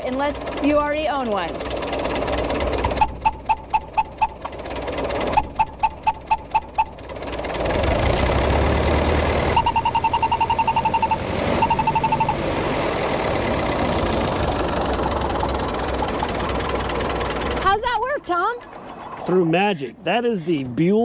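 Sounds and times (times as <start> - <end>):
car engine running: 0.0 - 21.0
rapid pulsing whistle: 2.8 - 7.4, 9.4 - 12.6, 17.6 - 19.9.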